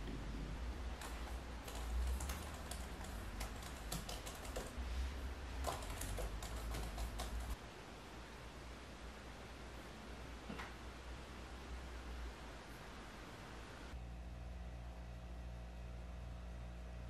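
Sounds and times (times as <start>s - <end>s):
laptop keyboard typing: 1.0s - 4.8s, 5.6s - 7.6s.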